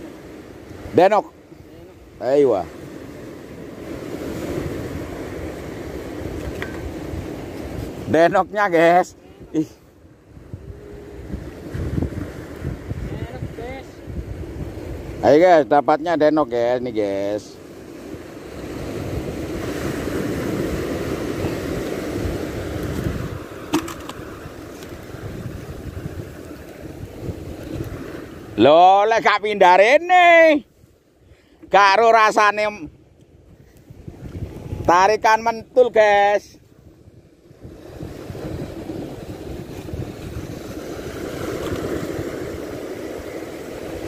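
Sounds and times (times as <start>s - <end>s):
wind buffeting microphone: 2.0s - 15.6s, 17.8s - 28.7s, 32.9s - 35.8s, 36.5s - 44.0s
surf breaking on rocks: 2.1s - 30.6s, 37.4s - 44.0s.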